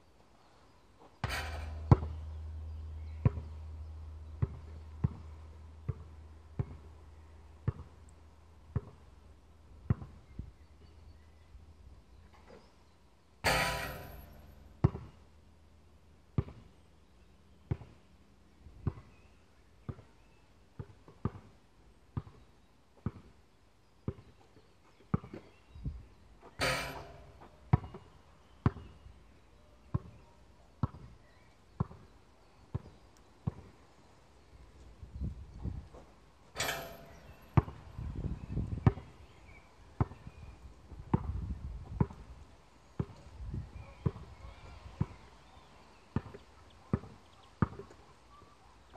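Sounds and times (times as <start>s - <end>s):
basketball bouncing on court: 1.2s - 2.3s, 3.2s - 3.6s, 4.4s - 7.0s, 7.6s - 8.0s, 8.7s - 9.0s, 9.9s - 10.2s, 13.5s - 15.2s, 16.4s - 16.6s, 26.6s - 28.0s, 31.8s - 32.1s, 46.2s - 47.8s.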